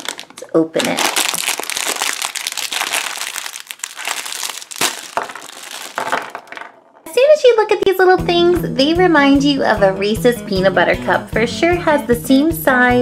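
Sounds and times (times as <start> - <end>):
foil wrappers rustling: 0.0 - 6.5
plastic bag crinkling: 0.0 - 7.1.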